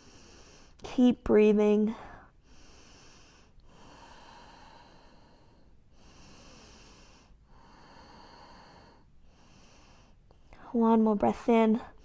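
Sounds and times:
slow deep breathing: 0.0 - 0.8, 2.0 - 10.6.

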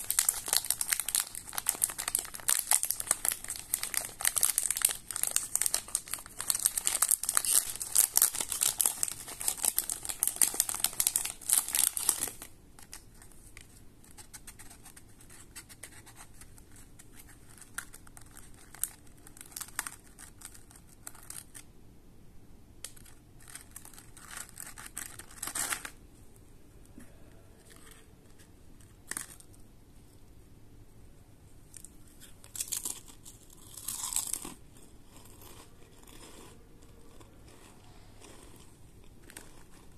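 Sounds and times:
plastic wrapper tearing and crinkling: 0.0 - 13.2, 17.2 - 21.7, 22.8 - 26.0.

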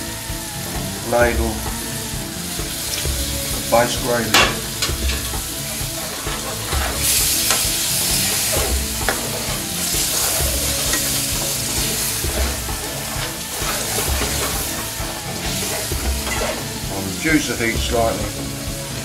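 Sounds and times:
curry sizzling in a pan: 0.0 - 19.0
metal spoon scraping pan: 2.9 - 16.8.

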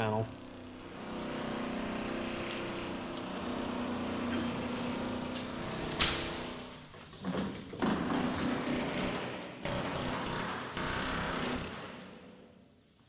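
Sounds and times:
air hammer cutting metal: 0.6 - 6.8
sharp metallic crack: 6.0 - 6.4.

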